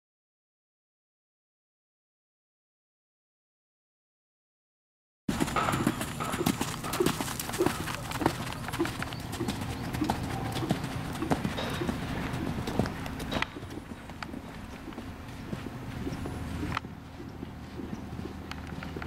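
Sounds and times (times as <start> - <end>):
horse hoofbeats on sand: 5.3 - 19.0.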